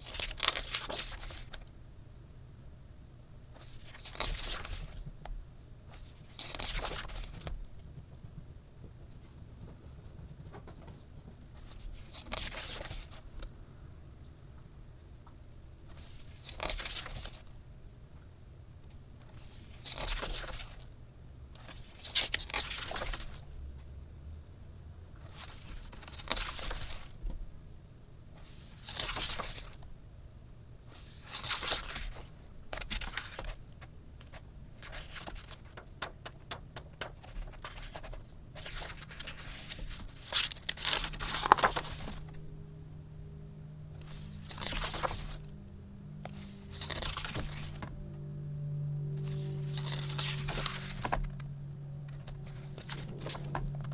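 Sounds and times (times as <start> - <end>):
book pages turning: 0.0 - 1.7, 3.6 - 5.0, 5.9 - 7.6, 11.5 - 13.3, 15.9 - 17.5, 19.2 - 20.9, 21.6 - 23.4, 25.2 - 27.2, 28.4 - 29.9, 30.9 - 42.4, 44.0 - 45.6, 46.2 - 48.0, 49.2 - 53.9.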